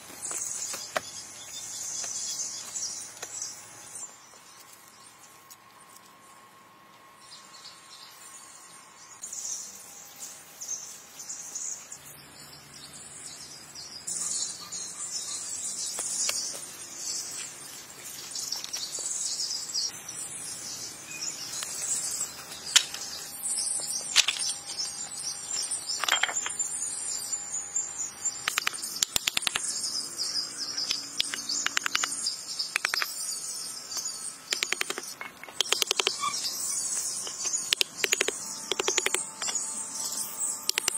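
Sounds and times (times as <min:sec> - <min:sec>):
birds chirping: 0:10.8 - 0:40.9
insects chirping: 0:18.5 - 0:40.9
wooden blocks tapping: 0:31.2 - 0:32.2, 0:34.6 - 0:36.2, 0:37.7 - 0:39.2.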